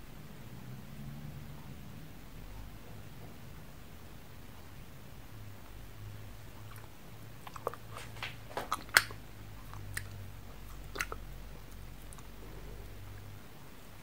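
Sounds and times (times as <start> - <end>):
faint low hum: 0.0 - 14.0
crunching hard candy: 6.7 - 13.0.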